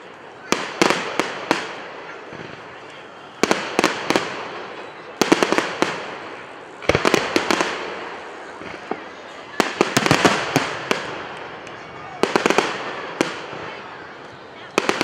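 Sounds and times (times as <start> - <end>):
fireworks bangs: 0.0 - 15.0.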